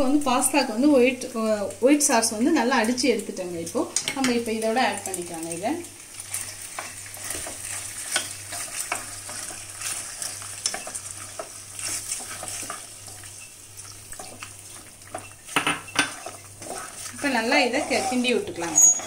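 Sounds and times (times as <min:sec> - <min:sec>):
sauce sizzling: 0:00.0 - 0:19.0
wooden spatula scraping a pan: 0:06.3 - 0:19.0.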